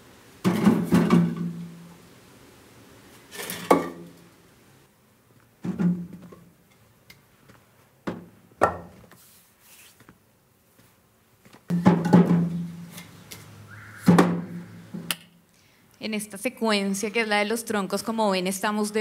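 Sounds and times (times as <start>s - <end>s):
logs thudding into metal wheelbarrow: 0.4s - 1.7s, 3.3s - 4.2s, 5.6s - 6.4s, 11.7s - 13.1s, 14.1s - 15.1s.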